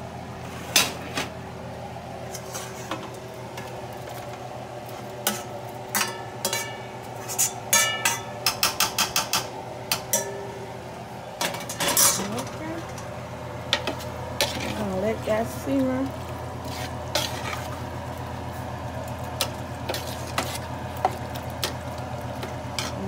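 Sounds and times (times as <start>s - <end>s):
metal spoon clanking on pans: 5.2s - 10.6s, 11.4s - 13.1s, 13.7s - 14.8s, 22.4s - 23.0s.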